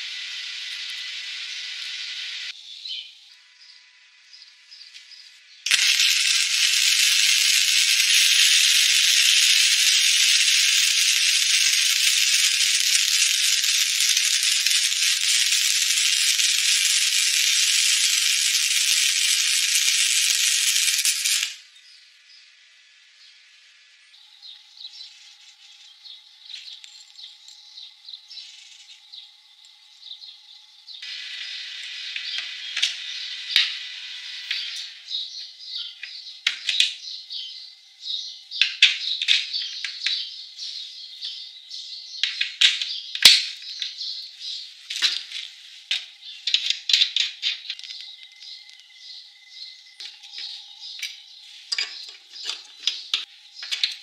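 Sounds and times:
welding arc crackling: 0.0 - 2.6, 5.6 - 21.7, 31.0 - 36.9, 42.2 - 54.0.

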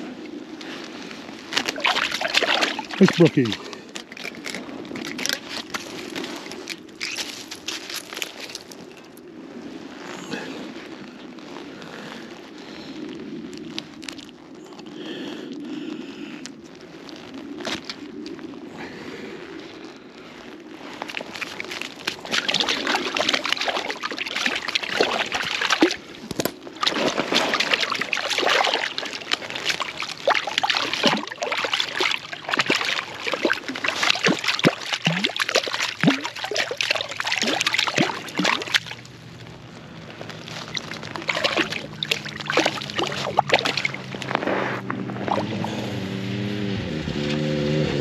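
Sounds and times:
water sloshing and splashing: 0.0 - 10.0, 20.8 - 46.0.

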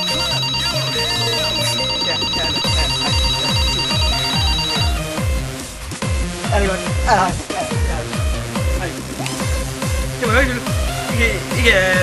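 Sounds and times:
telephone ringing electronic trill: 0.0 - 5.2
electronic dance music: 0.0 - 6.7.

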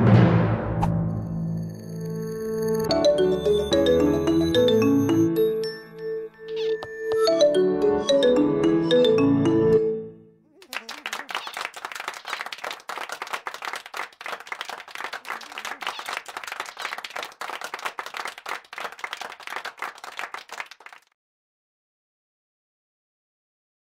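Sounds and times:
crowd applauding: 10.5 - 21.1.

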